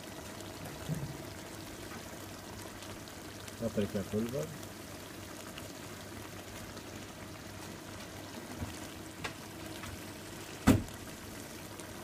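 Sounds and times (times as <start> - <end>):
sauce sizzling and bubbling in a pot: 0.0 - 12.0
sharp knock: 10.6 - 10.8.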